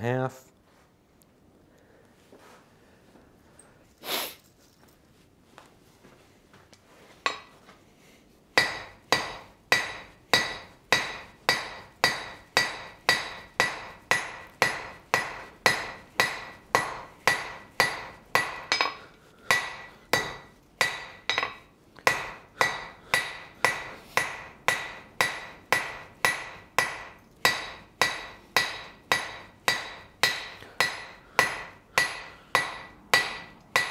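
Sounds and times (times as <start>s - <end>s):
hammer striking metal on anvil: 7.2s - 7.6s, 8.6s - 33.9s.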